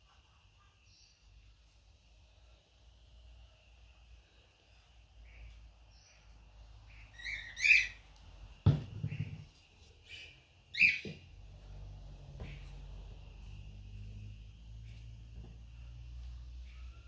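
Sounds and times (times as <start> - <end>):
bird chirping: 4.3 - 8.2, 8.8 - 17.0
wooden knocks: 8.7 - 9.5.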